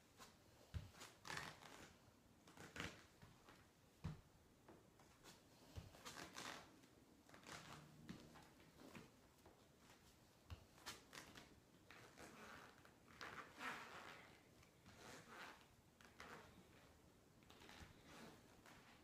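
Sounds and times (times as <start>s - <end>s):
sneakers scuffing on yoga mat: 0.1s - 1.9s.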